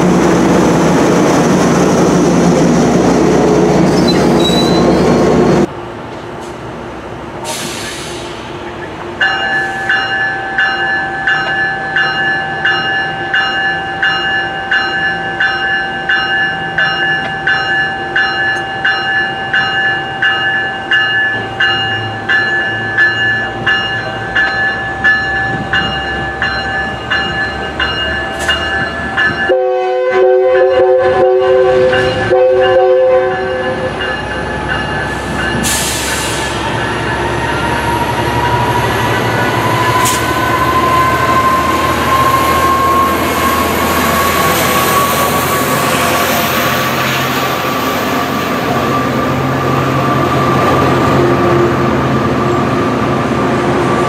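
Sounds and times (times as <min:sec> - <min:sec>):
train coaches rumbling: 0:00.0 - 0:54.0
train bell dinging rapidly: 0:09.2 - 0:29.8, 0:30.5 - 0:37.8
train horn blast: 0:29.5 - 0:34.0.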